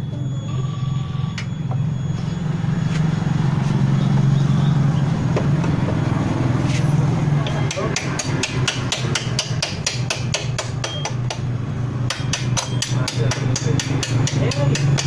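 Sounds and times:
low mechanical drone: 0:00.0 - 0:15.0.

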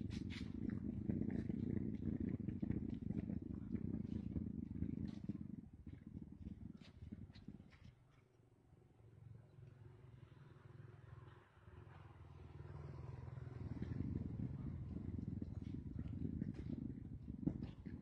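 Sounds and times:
vehicle engine rumble: 0:11.3 - 0:18.0.

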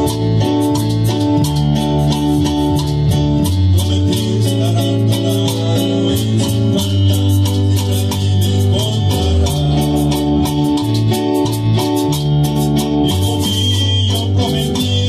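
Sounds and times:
congas: 0:00.0 - 0:15.0
electric bass guitar: 0:00.0 - 0:15.0
keyboard chords: 0:00.0 - 0:15.0
quick high percussion ticks: 0:00.0 - 0:15.0.

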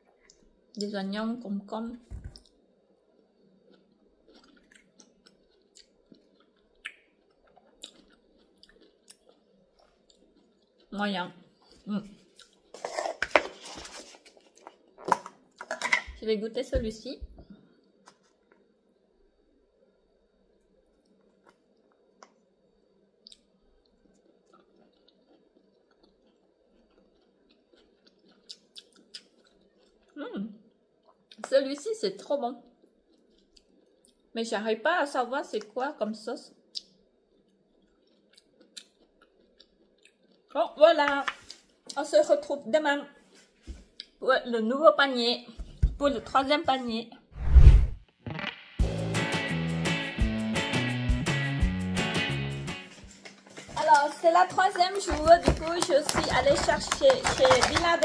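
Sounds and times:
faint chewing of salad: 0:02.2 - 0:15.7, 0:19.9 - 0:31.6, 0:32.6 - 0:34.3, 0:36.6 - 0:40.6, 0:41.2 - 0:42.0
clicks of eating from plastic pot: 0:53.5 - 0:58.0.

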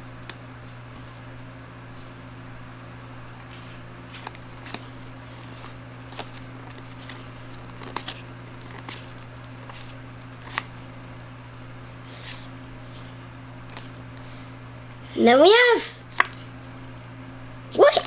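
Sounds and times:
steady low hum: 0:00.0 - 0:18.0
trading cards handled: 0:03.3 - 0:11.2, 0:12.1 - 0:14.3, 0:16.1 - 0:16.4
card flicks and snaps: 0:06.1 - 0:10.7.

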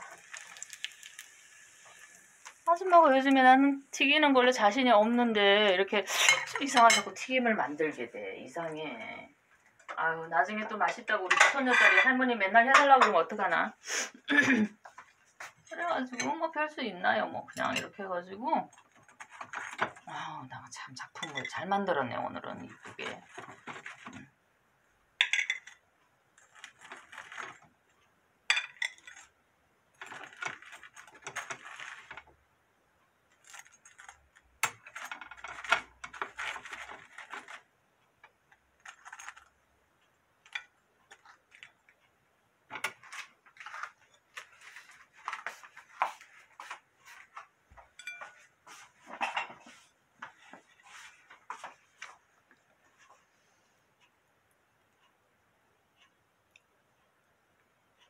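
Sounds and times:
metal tongs clinking on plates: 0:06.2 - 0:07.1, 0:11.3 - 0:13.2, 0:25.2 - 0:25.8, 0:48.0 - 0:48.4.

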